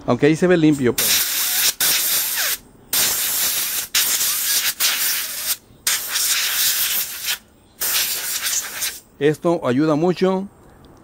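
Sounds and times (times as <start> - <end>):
compressed air nozzle hissing: 1.0 - 9.1.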